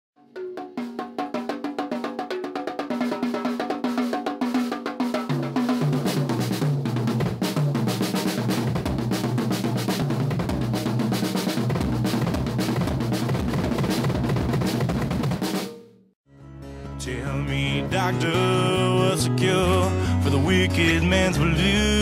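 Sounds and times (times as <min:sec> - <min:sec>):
drum kit playing: 0:00.2 - 0:16.0.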